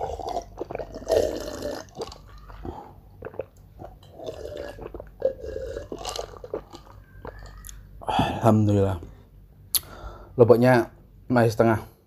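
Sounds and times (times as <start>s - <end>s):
chewing and biting: 0.0s - 7.8s
wet mouth sounds: 0.0s - 7.8s.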